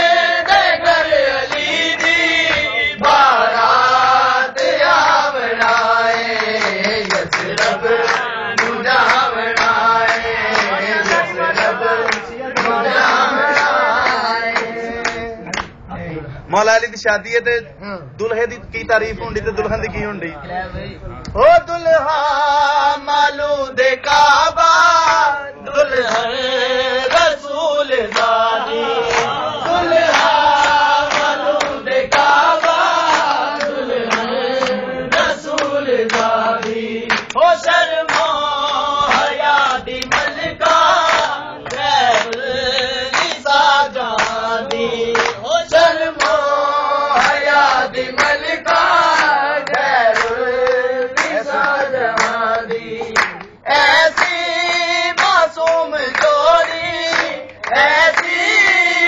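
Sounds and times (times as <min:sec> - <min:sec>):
men chanting together: 0:00.0 - 0:15.7, 0:21.6 - 0:59.0
hand clapping: 0:00.4 - 0:03.2, 0:04.6 - 0:15.8, 0:25.0 - 0:25.3, 0:26.0 - 0:27.5, 0:28.1 - 0:59.0.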